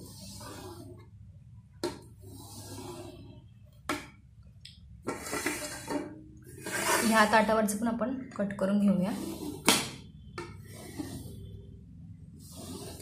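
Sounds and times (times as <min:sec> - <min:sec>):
knife scraping a steel plate: 0:02.2 - 0:03.3, 0:05.1 - 0:06.0, 0:06.6 - 0:07.3, 0:09.0 - 0:09.9, 0:10.6 - 0:11.5, 0:12.4 - 0:13.0.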